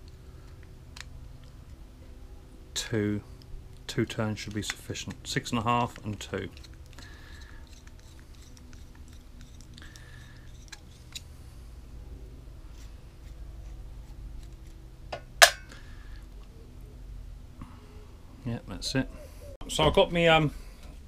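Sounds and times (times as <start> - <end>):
sharp metallic clink: 15.2 - 15.8.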